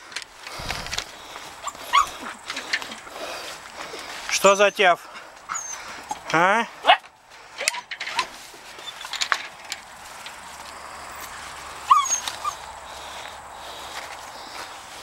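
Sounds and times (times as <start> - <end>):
light clicks and rustles: 0.0 - 4.5, 7.0 - 11.4
dogs whining in high squeaks: 1.6 - 2.3, 5.5 - 6.3, 7.6 - 9.2, 11.9 - 12.6.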